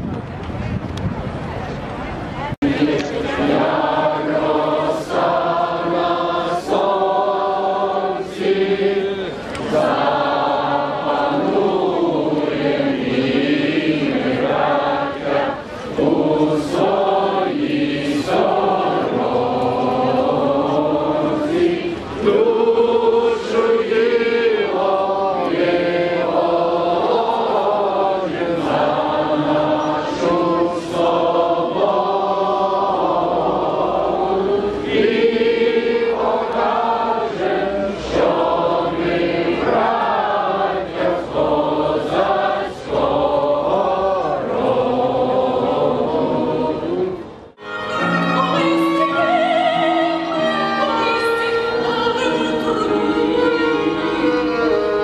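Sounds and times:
choir singing held notes: 2.6s - 55.0s
person singing: 45.8s - 55.0s
violin playing: 47.6s - 55.0s.

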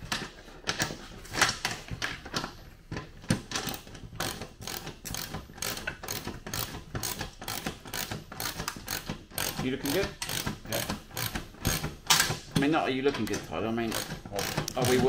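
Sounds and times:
ratchet spanner clicking: 3.6s - 12.3s, 13.9s - 15.0s.

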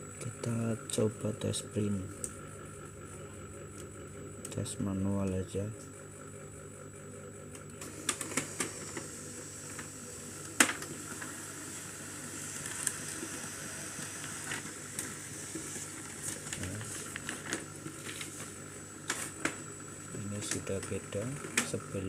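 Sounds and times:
laser printer running: 0.0s - 22.0s.

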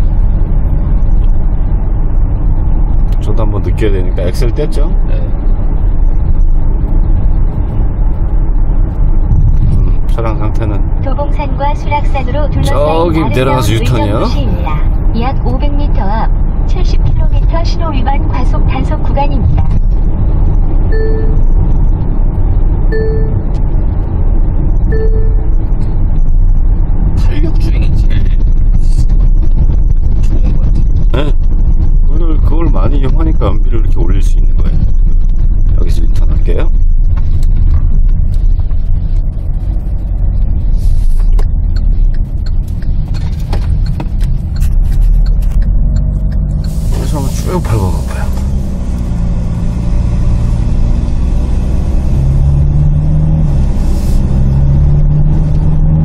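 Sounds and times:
road and engine rumble in car: 0.0s - 56.0s
short electronic beeps: 20.9s - 21.5s, 22.9s - 23.5s, 24.9s - 25.6s.

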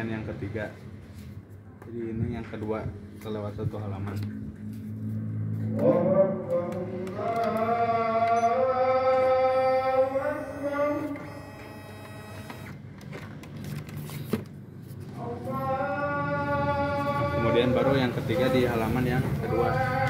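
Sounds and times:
man chanting: 5.7s - 11.3s, 15.1s - 20.0s.

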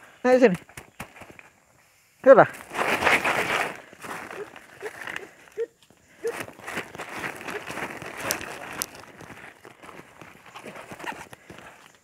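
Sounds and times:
footsteps crunching through dry leaves: 2.5s - 5.4s, 6.2s - 11.9s.

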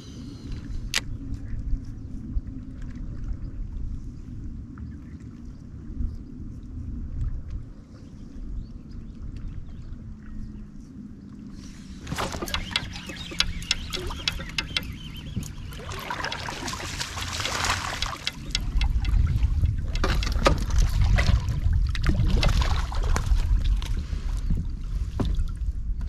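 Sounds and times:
strong low rumble: 0.0s - 26.0s
water splashing and lapping: 9.1s - 25.8s
sharp clicks and knocks: 12.0s - 20.9s.

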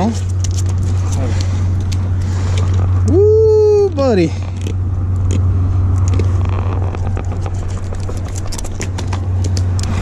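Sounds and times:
low rumble: 0.0s - 10.0s
camera rustling against clothing: 6.1s - 10.0s.

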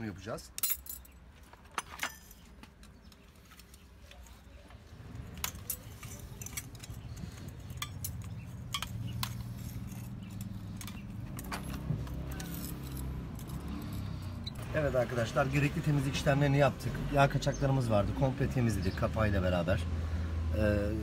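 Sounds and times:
metal parts clicking: 0.5s - 4.3s, 5.2s - 14.7s.

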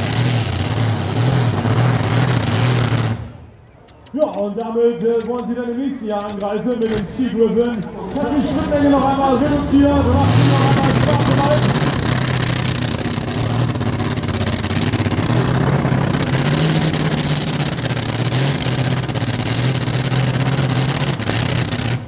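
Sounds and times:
tractor engine running hard: 0.0s - 4.2s, 6.2s - 22.0s.

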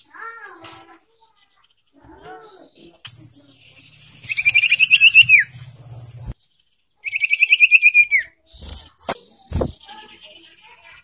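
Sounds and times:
songbird trilling: 4.2s - 5.5s, 7.0s - 8.3s.

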